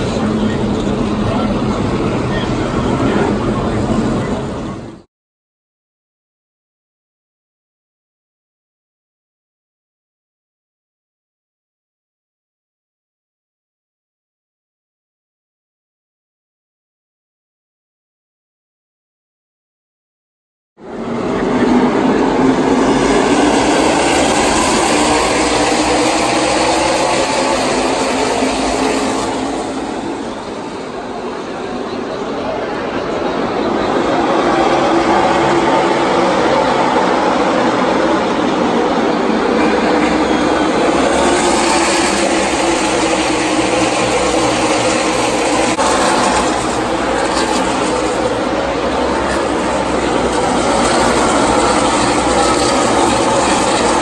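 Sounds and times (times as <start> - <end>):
race car engines droning: 0.0 - 5.1, 20.8 - 54.0.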